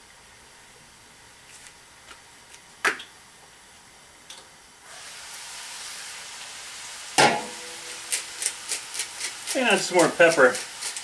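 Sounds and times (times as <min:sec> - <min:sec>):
food sizzling in a skillet: 0:04.8 - 0:11.0
metal pan lid clanking: 0:07.2 - 0:07.8.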